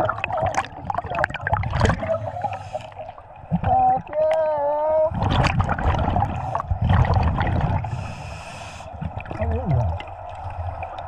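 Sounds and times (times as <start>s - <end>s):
diver exhaling gurgling bubbles: 0.0s - 4.1s, 5.1s - 11.0s
regulator hissing inhale: 2.3s - 3.1s, 6.3s - 6.8s, 7.8s - 9.1s.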